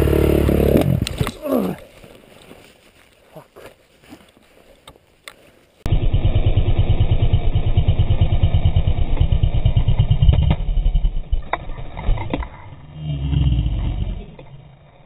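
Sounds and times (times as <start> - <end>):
dirt bike engine low throb: 0.0 - 1.1, 5.9 - 15.0.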